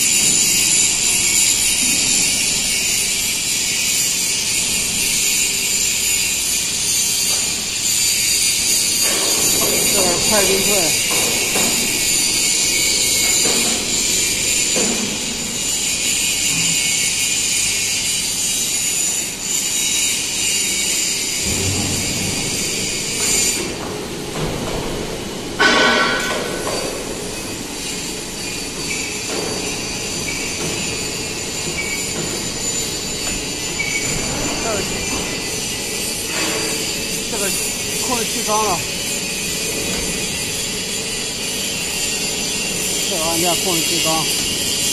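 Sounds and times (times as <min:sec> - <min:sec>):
machine hiss with whining tones: 0:25.6 - 0:44.9
loud squeal: 0:28.4 - 0:39.5.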